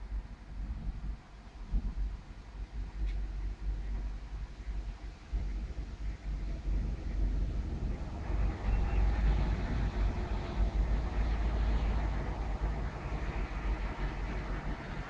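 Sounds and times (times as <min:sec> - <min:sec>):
low thunder rumble: 0:00.0 - 0:15.0
wind buffeting microphone: 0:00.0 - 0:15.0.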